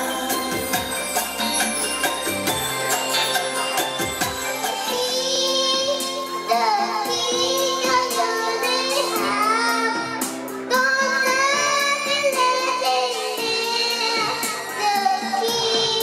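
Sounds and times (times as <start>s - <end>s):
backing music with beat: 0.0s - 16.0s
girl singing into microphone: 4.8s - 16.0s.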